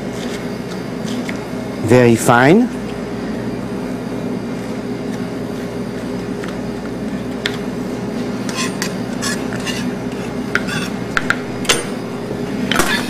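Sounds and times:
knife scraping on cutting board: 0:08.4 - 0:11.0.

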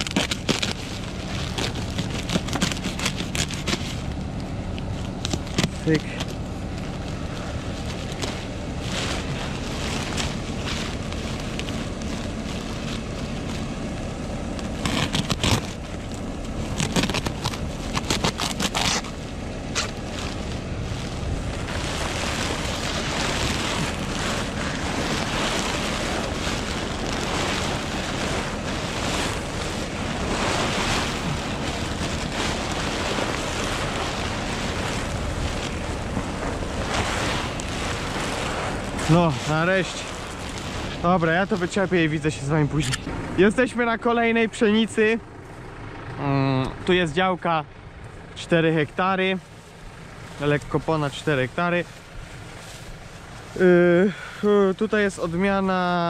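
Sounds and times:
wind rushing over microphone: 0:00.0 - 0:43.4
tractor engine running: 0:00.0 - 0:56.0.

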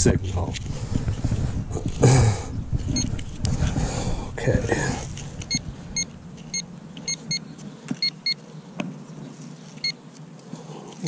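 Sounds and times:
high electronic beeps: 0:08.0 - 0:08.4.

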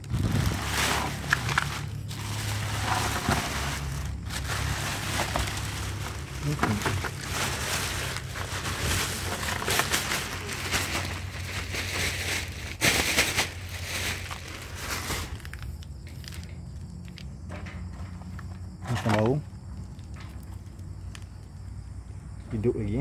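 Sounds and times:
plastic bag crinkling: 0:00.0 - 0:16.5.

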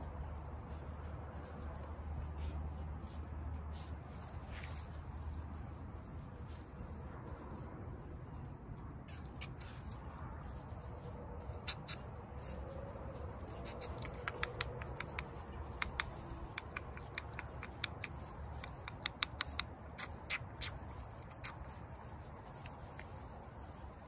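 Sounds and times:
puppies squeaking: 0:11.4 - 0:12.7, 0:13.4 - 0:23.3.

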